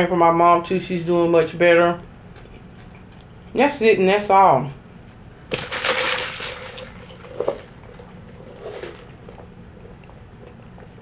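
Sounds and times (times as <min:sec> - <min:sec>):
sipping through a straw: 0:07.4 - 0:11.0.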